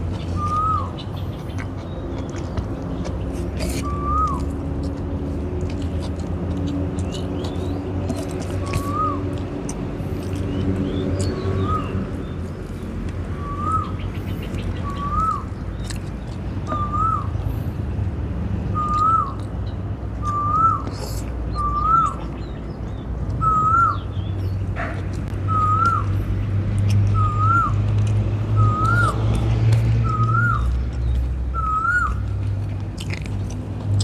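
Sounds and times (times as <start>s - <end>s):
bird whistling: 0.3s - 1.0s, 3.8s - 4.5s, 8.6s - 9.3s, 10.5s - 12.0s, 13.3s - 15.6s, 16.7s - 17.4s, 18.7s - 19.4s, 20.2s - 22.2s, 23.4s - 24.1s, 25.5s - 26.2s, 27.1s - 27.8s, 28.6s - 29.2s, 30.0s - 30.7s, 31.5s - 32.2s.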